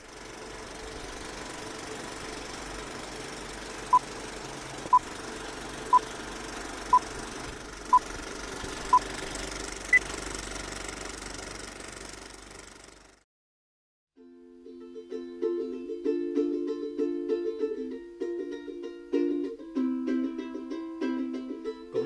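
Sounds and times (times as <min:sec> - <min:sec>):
film projector clatter: 0:00.0 - 0:13.2.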